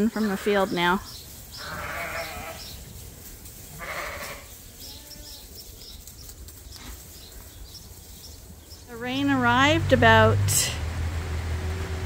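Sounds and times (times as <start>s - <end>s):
sheep bleating: 1.6s - 2.8s, 3.7s - 5.5s.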